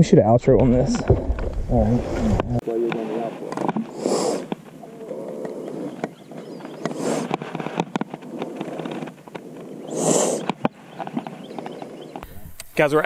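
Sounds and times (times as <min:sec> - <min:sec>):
breathy gusts: 0:03.0 - 0:07.7, 0:09.4 - 0:10.6.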